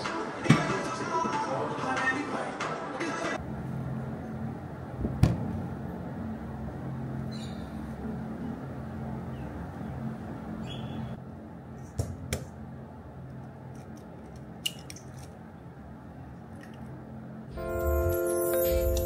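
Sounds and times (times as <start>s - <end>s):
steady low hum: 3.4s - 17.7s.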